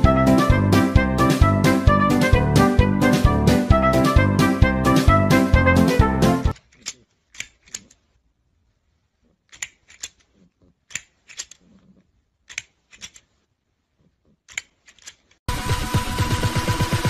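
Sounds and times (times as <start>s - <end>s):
plastic toy jaws clacking: 6.5s - 8.2s, 9.4s - 13.4s, 14.0s - 15.4s.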